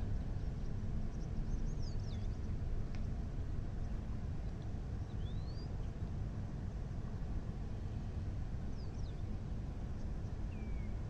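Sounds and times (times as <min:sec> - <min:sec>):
light click: 0:02.9 - 0:03.1.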